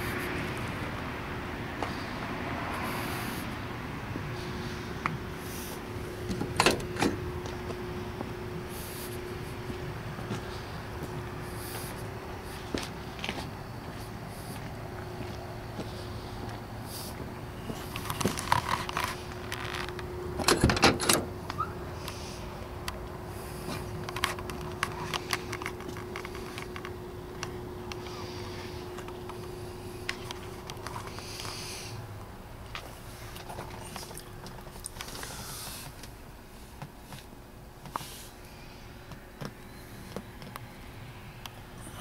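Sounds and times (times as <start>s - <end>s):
faint steady hum: 0.0s - 42.0s
car door opening: 6.2s - 7.7s, 17.9s - 21.8s.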